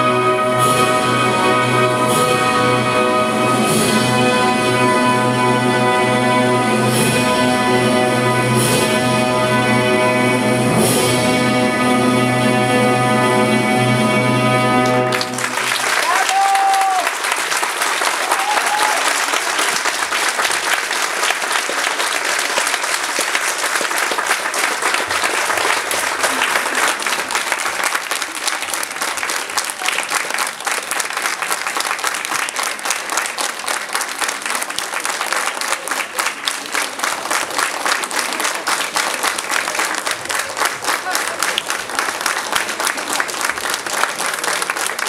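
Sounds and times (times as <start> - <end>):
large audience applauding: 14.8 - 45.0.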